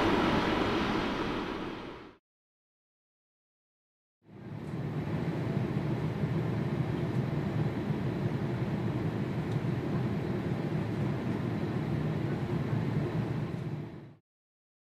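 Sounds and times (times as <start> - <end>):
distant jet engines rumbling: 0.0 - 2.2.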